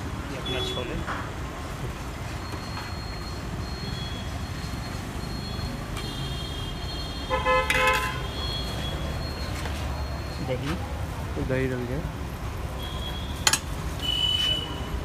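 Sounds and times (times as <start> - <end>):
street traffic noise: 0.0 - 15.0
vehicle horn honking: 6.0 - 8.3.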